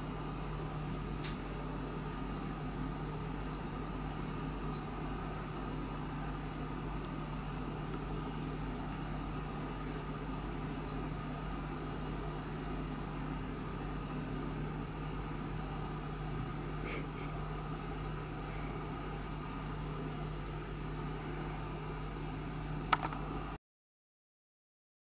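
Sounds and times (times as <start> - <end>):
low electrical hum: 0.0 - 23.6
sharp click: 22.9 - 23.2.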